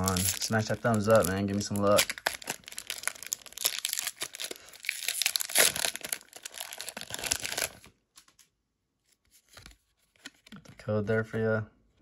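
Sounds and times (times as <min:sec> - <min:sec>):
foil wrapper tearing and crinkling: 0:00.0 - 0:07.9.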